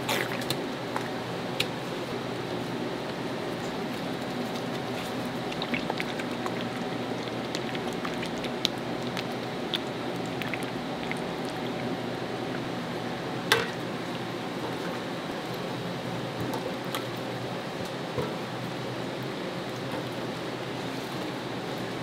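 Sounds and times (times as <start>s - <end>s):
wet liquid cooking sound: 0.0s - 15.6s.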